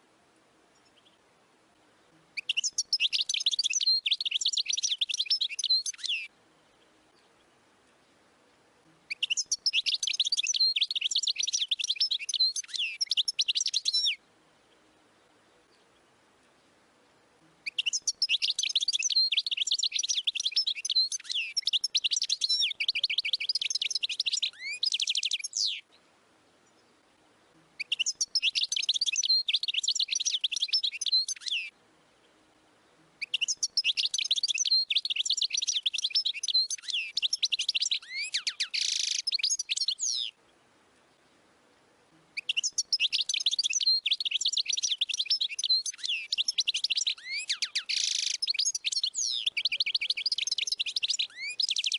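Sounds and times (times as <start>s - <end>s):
bird twittering: 2.4s - 6.3s, 9.1s - 14.2s, 17.6s - 25.8s, 27.8s - 31.7s, 33.2s - 40.4s, 42.4s - 51.9s.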